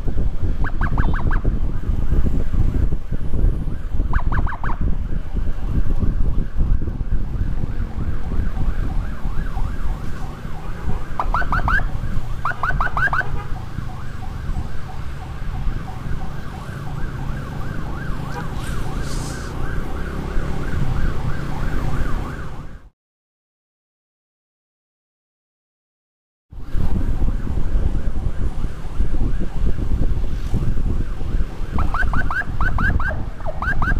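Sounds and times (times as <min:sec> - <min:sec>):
motorcycle moving: 0:00.0 - 0:22.9, 0:26.6 - 0:33.9
wind rumble: 0:00.0 - 0:22.9, 0:26.5 - 0:33.9
electronic siren warbling: 0:00.6 - 0:01.6, 0:03.5 - 0:04.9, 0:06.2 - 0:22.9, 0:31.7 - 0:33.9.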